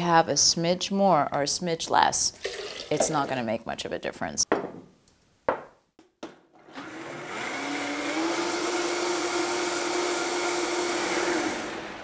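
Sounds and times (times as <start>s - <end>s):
blender motor running: 6.6s - 12.0s.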